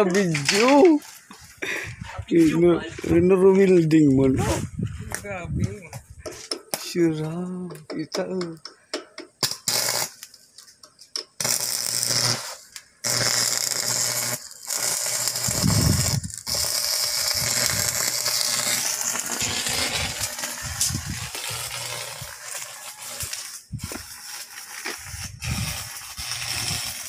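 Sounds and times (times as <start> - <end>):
welding arc crackling and hissing: 9.4 - 10.4, 11.1 - 27.0.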